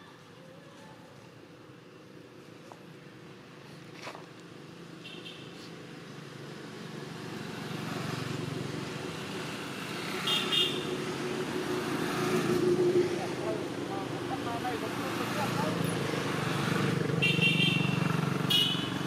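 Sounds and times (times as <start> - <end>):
vehicle engine approaching: 11.0 - 17.2.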